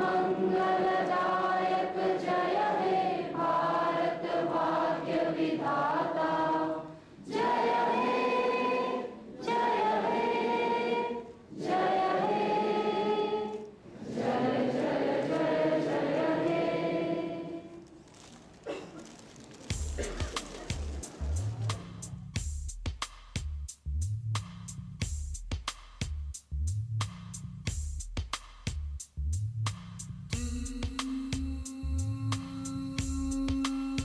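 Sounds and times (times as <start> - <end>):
group singing in unison: 0.0 - 17.8.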